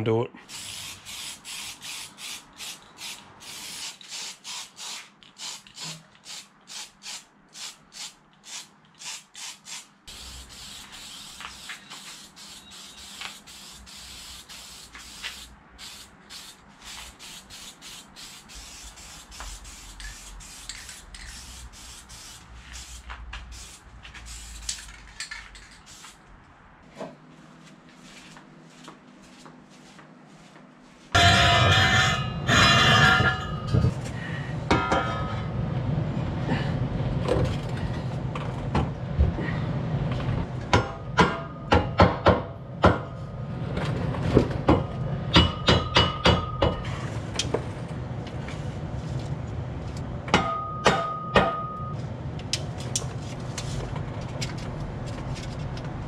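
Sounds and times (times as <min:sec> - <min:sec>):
spray paint hissing: 0:00.5 - 0:25.0, 0:25.6 - 0:26.2
spray can ball rattling: 0:00.6 - 0:26.2.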